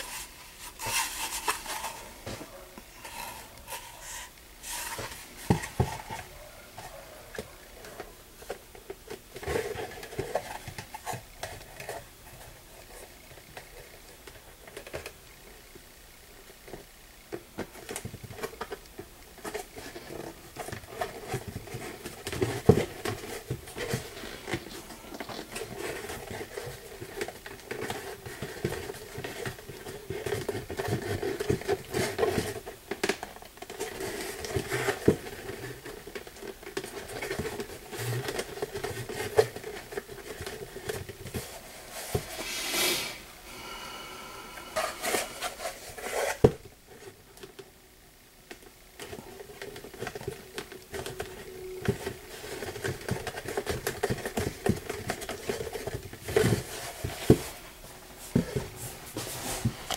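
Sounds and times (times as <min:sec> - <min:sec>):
faint steady hum: 0:00.0 - 0:59.9.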